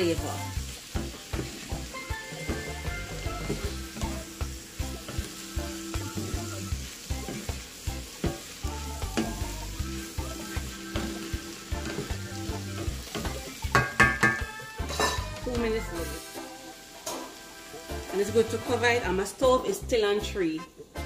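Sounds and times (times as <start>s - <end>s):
vegetables sizzling in a skillet: 0.0s - 21.0s
spoon scraping a pan: 5.0s - 15.5s
knocks against a pan: 13.2s - 15.3s.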